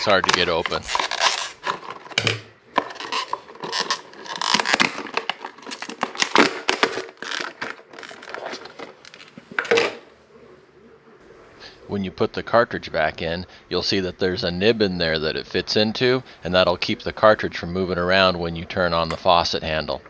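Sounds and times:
plastic packaging crackling and tearing: 0.0s - 9.8s.

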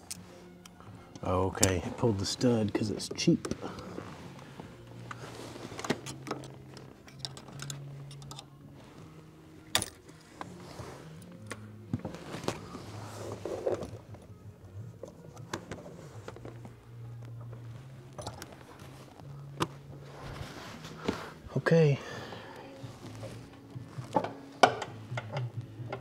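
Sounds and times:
tools clicking and knocking: 7.1s - 8.5s, 24.1s - 26.0s
background music with bass line: 22.8s - 26.0s.

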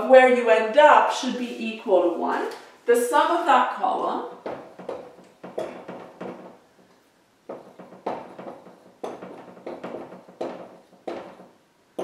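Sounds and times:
marker writing on whiteboard: 4.4s - 12.0s.

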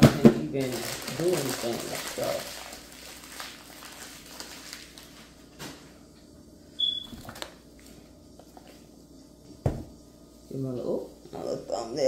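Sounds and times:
plastic packs clicking and knocking: 0.0s - 5.1s.

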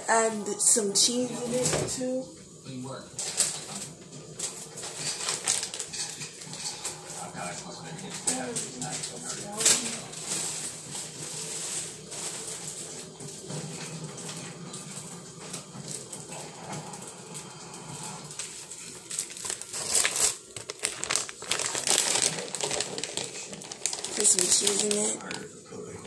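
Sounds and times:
plastic wrapper crinkling: 3.2s - 7.5s, 18.4s - 25.5s.

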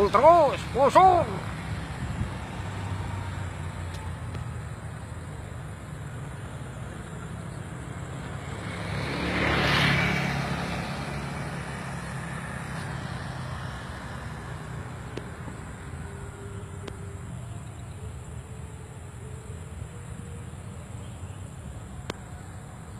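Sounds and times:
vehicle passing close by: 0.0s - 17.1s.

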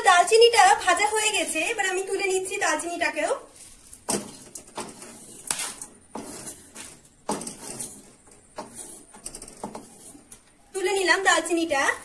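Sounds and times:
wooden spatula scraping metal pan: 3.5s - 11.7s.

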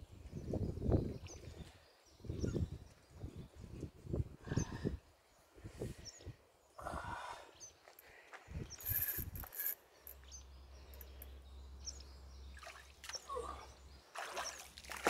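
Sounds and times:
faint bird chirps: 0.3s - 3.8s
water splashing around legs: 14.1s - 15.0s.

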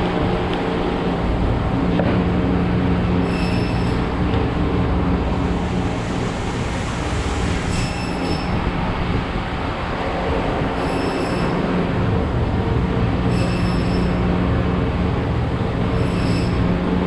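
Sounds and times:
machinery humming: 0.0s - 17.0s
high-pitched squeal: 3.2s - 4.1s, 5.4s - 8.8s, 10.7s - 11.7s, 13.2s - 14.3s, 15.8s - 16.8s.

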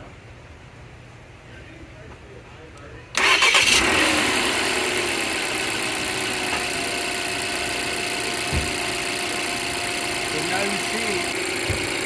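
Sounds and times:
starter cranking: 3.2s - 4.4s
car engine idling: 3.2s - 12.0s.

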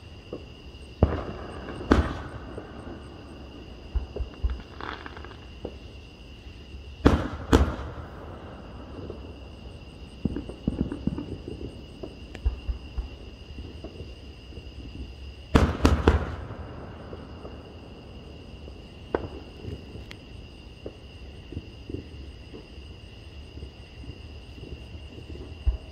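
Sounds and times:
fireworks crackling: 0.0s - 5.9s, 7.0s - 14.0s, 15.6s - 21.0s
fireworks bangs: 0.3s - 5.8s, 7.0s - 13.2s, 15.5s - 18.2s, 18.9s - 20.1s.

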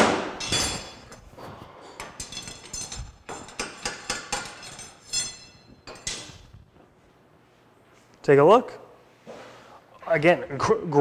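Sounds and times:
metallic clinks and knocks: 0.4s - 6.6s.

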